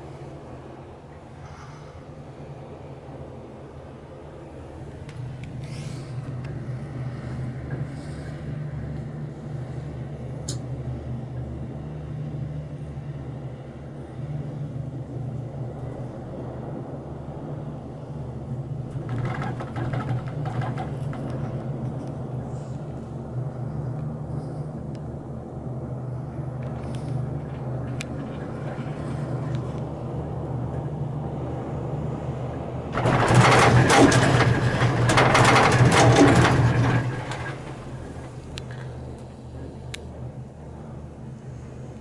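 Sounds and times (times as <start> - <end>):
gondola cabin hum and rumble: 0.0 - 42.0
cabin rattling: 19.0 - 21.6, 33.0 - 38.3.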